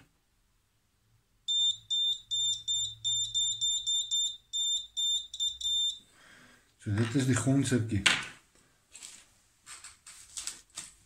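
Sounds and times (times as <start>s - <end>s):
electronic buzzer beeping: 1.5s - 6.0s.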